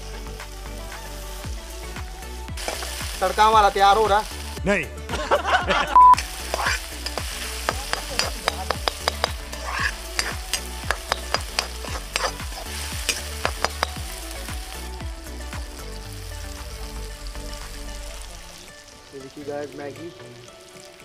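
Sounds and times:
frying sizzle: 0.0 - 21.0
metal spatula scraping a pan: 6.3 - 13.9.

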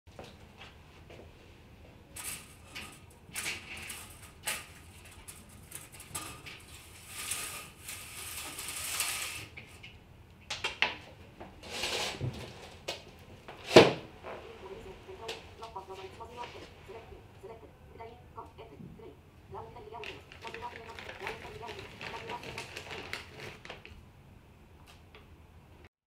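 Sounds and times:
rustling: 2.2 - 9.9, 19.9 - 24.0
footsteps: 12.2 - 17.2.

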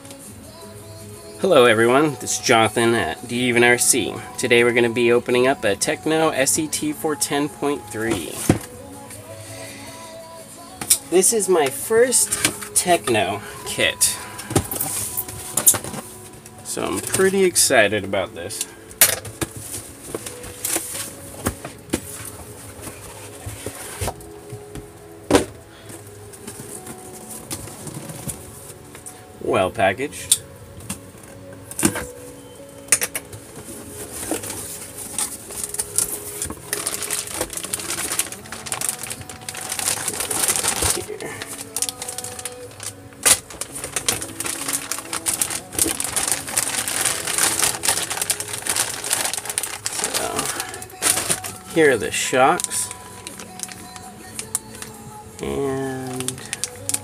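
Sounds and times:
plastic bags crinkling: 11.0 - 29.0, 33.3 - 57.0
cardboard boxes scraping and rustling: 19.5 - 24.3.

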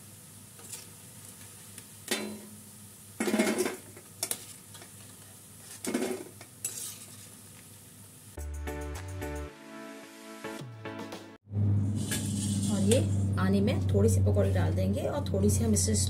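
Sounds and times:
oil sizzling: 0.0 - 8.4, 11.6 - 13.9
metal spoon scraping pan: 5.7 - 7.3, 12.0 - 13.3.

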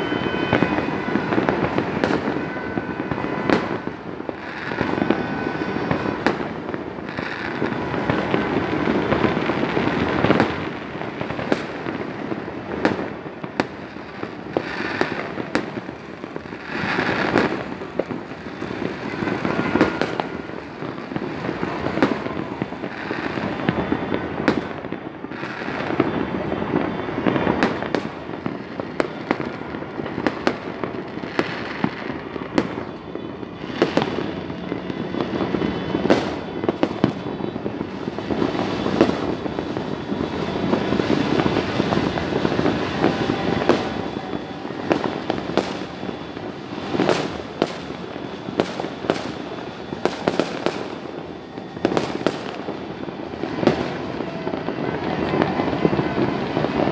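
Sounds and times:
sharp firecracker cracks: 0.0 - 5.2, 11.2 - 11.9, 36.0 - 37.2, 44.8 - 46.1, 47.0 - 51.2
fireworks crackling and rumbling: 0.0 - 56.9.

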